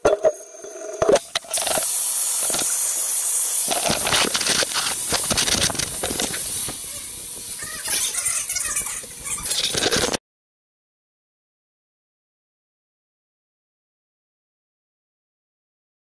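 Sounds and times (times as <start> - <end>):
electric hand dryer blowing: 0.9 - 10.1.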